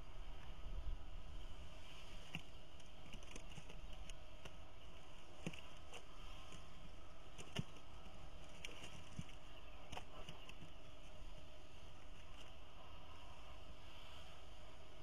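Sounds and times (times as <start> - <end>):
steady faint hiss: 0.0 - 15.0
light clicks and taps: 2.3 - 4.6.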